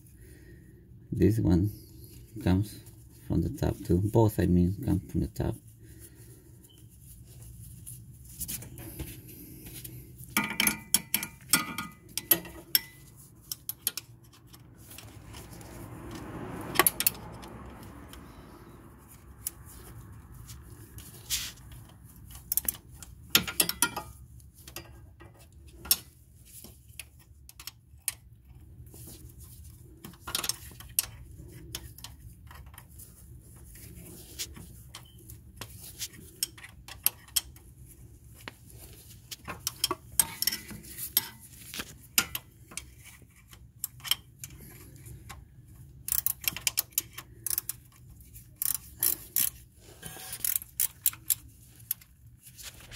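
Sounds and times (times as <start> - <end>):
ratchet clicking: 46.0 - 48.0, 48.6 - 49.6, 50.3 - 52.0
metal scrape: 48.8 - 50.8.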